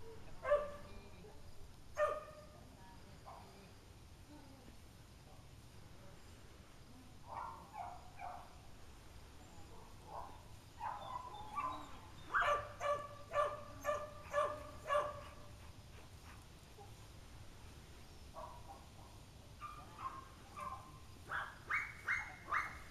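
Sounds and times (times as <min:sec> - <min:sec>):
dog barking: 0:00.4 - 0:00.9, 0:02.0 - 0:02.5, 0:07.3 - 0:08.5, 0:10.1 - 0:15.5, 0:18.4 - 0:22.9.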